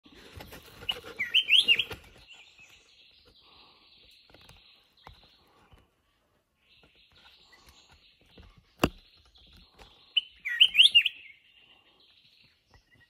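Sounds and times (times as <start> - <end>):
bird singing whistled notes: 0.9 - 3.2, 9.0 - 11.6.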